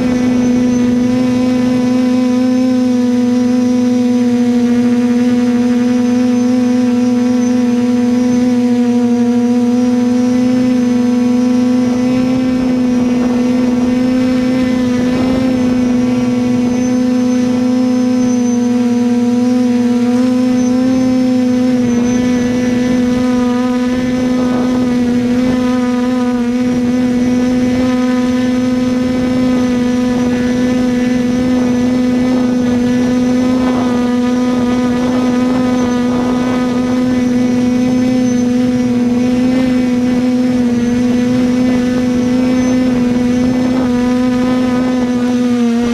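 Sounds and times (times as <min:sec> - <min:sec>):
drone propellers humming: 0:00.0 - 0:45.9.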